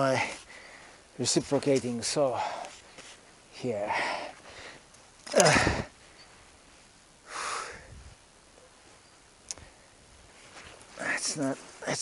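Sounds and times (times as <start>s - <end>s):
man exhaling loudly: 5.4s - 5.9s.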